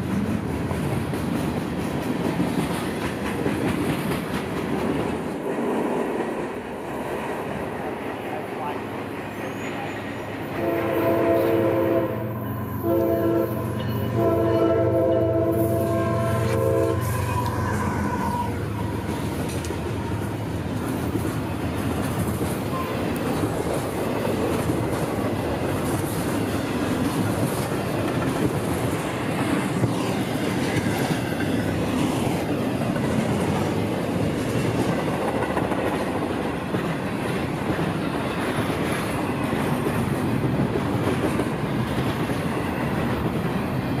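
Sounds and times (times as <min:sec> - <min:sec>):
train wheels clicking on rail joints: 0:00.0 - 0:08.2, 0:16.3 - 0:44.0
freight train rumbling past: 0:00.0 - 0:44.0
locomotive horn blasts: 0:10.5 - 0:18.9.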